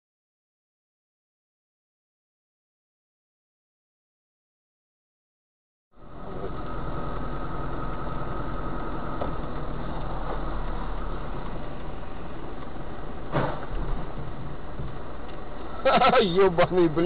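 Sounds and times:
car engine and road noise: 5.9 - 17.0.

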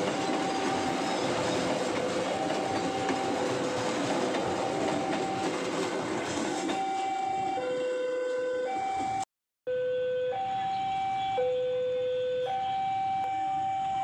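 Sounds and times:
passing train rushing: 0.0 - 9.2
two-tone electronic warning tone: 2.2 - 3.8, 4.6 - 5.6, 6.8 - 14.0.

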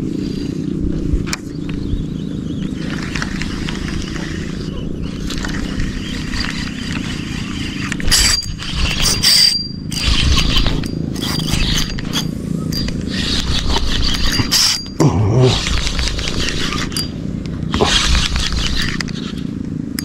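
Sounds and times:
low steady rumble: 0.0 - 20.0
fishing reel whirring: 2.7 - 20.0.

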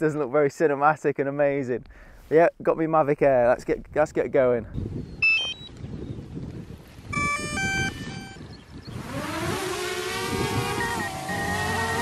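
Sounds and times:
electronic beeps: 5.2 - 5.8, 7.1 - 8.5, 10.8 - 12.0
drone propeller buzz: 7.1 - 12.0.

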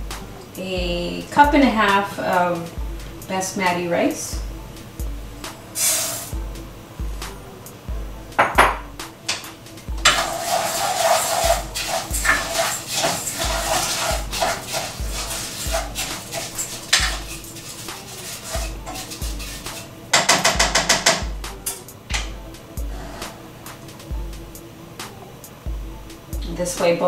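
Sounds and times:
rice rattling in pot: 10.0 - 21.2.

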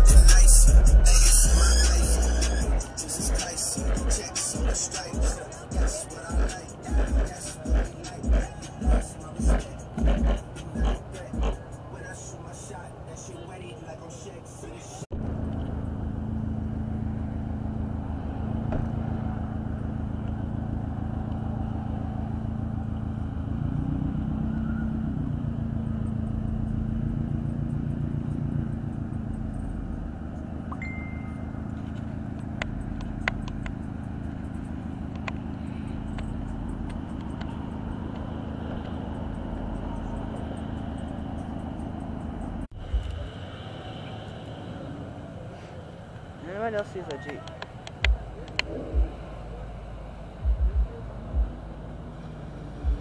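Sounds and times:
car engine idling: 0.0 - 23.6, 24.6 - 53.0
sharp clicks: 47.0 - 48.8.

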